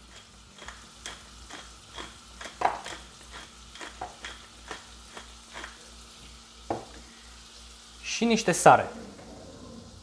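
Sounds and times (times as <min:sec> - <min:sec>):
pepper mill grinding: 0:00.0 - 0:06.2
butter sizzling in a pan: 0:00.0 - 0:10.0.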